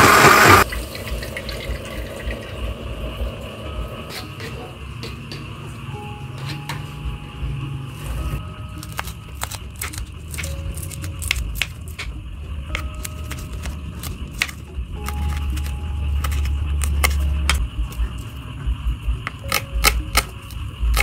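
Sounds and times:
low rumble: 0:14.2 - 0:19.4.

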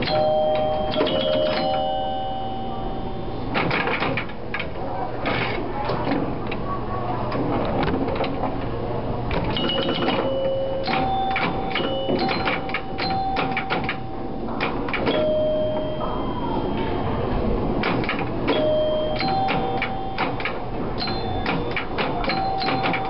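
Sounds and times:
pinball machine bells ringing: 0:00.0 - 0:03.5, 0:09.5 - 0:17.3, 0:18.4 - 0:23.0
clatter of pinball clicks: 0:03.6 - 0:06.6, 0:09.3 - 0:14.0, 0:14.6 - 0:15.3, 0:17.8 - 0:23.0.

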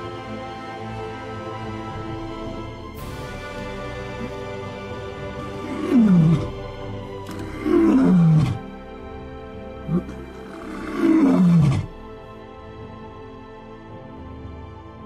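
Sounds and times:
background music: 0:00.0 - 0:15.0
lion grunt: 0:04.0 - 0:08.7, 0:09.8 - 0:11.9
lion roaring: 0:05.2 - 0:08.7, 0:09.8 - 0:11.9.

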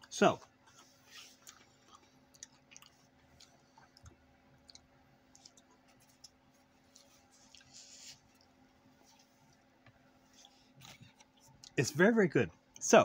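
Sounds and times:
potato chips being chewed: 0:00.0 - 0:08.5
low steady hum: 0:00.0 - 0:13.0.

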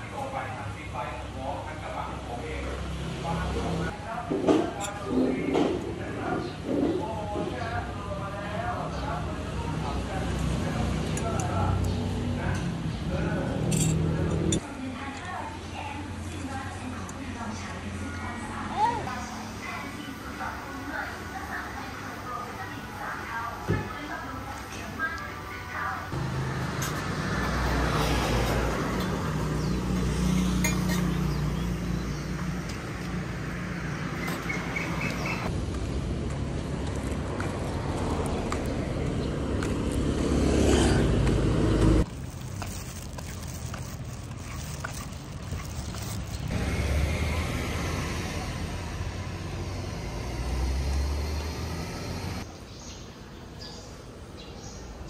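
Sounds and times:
travel noise: 0:00.0 - 0:55.0
broad noise: 0:12.5 - 0:26.9
vehicle engine droning: 0:25.1 - 0:52.5.

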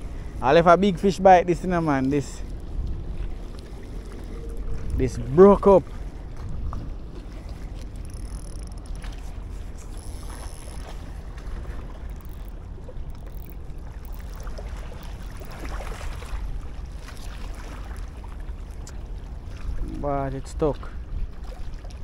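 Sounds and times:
faint water wash: 0:00.0 - 0:22.0
wind buffeting microphone: 0:00.0 - 0:22.0
light ticks: 0:12.0 - 0:15.6.

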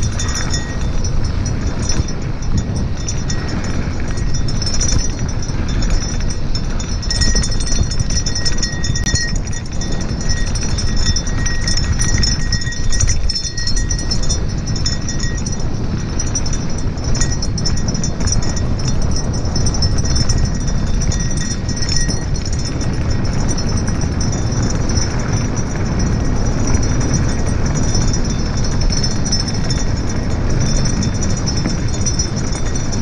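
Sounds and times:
thin high tone: 0:00.0 - 0:15.5
bike rattling: 0:00.0 - 0:33.0
wind buffeting microphone: 0:00.0 - 0:33.0.

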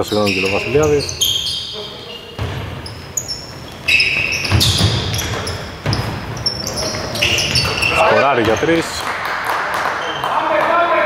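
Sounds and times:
shoes squeaking on floor: 0:00.0 - 0:09.0
basketball bouncing on court: 0:02.3 - 0:08.9.

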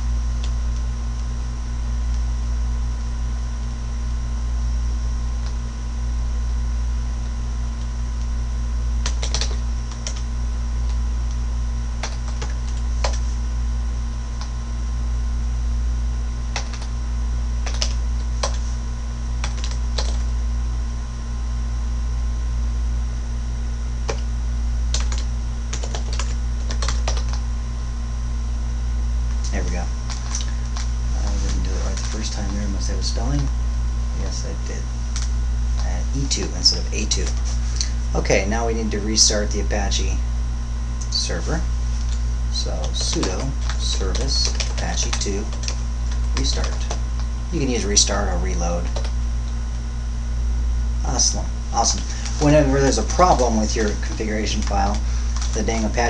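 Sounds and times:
low electrical hum: 0:00.0 - 0:56.0
computer keyboard keystrokes: 0:09.0 - 0:10.3, 0:12.0 - 0:13.3, 0:16.5 - 0:16.9, 0:17.6 - 0:18.6, 0:19.4 - 0:20.2, 0:24.9 - 0:27.4, 0:29.5 - 0:32.6, 0:42.8 - 0:47.3, 0:48.8 - 0:49.1, 0:53.3 - 0:55.6.

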